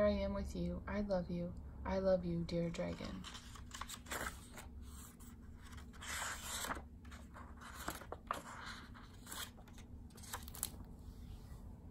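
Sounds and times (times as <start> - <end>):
book pages turning: 2.8 - 10.9.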